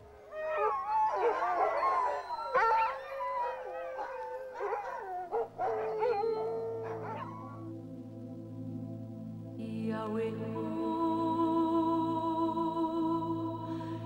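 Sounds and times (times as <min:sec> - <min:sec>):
dogs howling together: 0:00.0 - 0:07.7
dog yelp: 0:04.0 - 0:07.4.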